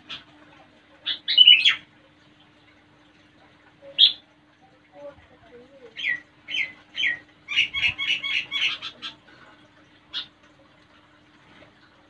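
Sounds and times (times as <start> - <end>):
parakeet squawking and chattering: 1.0 - 1.9, 3.9 - 4.2, 5.9 - 9.2, 10.1 - 10.4.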